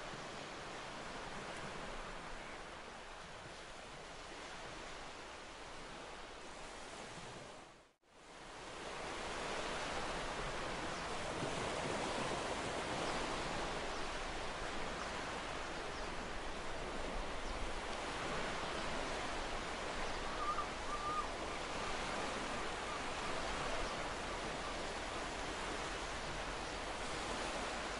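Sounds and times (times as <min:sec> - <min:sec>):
surf washing on sand: 0:00.0 - 0:27.9
wind: 0:00.0 - 0:27.9.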